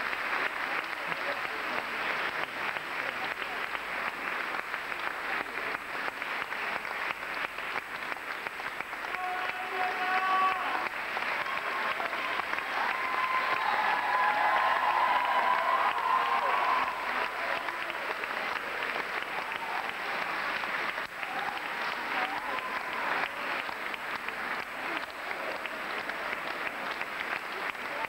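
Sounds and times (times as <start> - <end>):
crowd applauding: 0.0 - 28.0.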